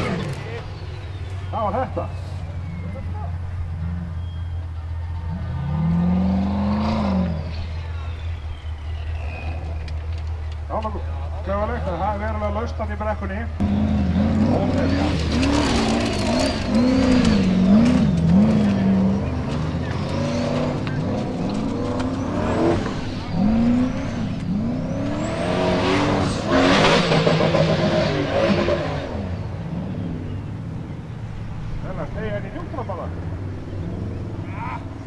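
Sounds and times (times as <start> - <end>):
buggy engine revving hard: 0.0 - 9.7, 13.6 - 35.0
tyres spinning on dirt: 13.6 - 29.1.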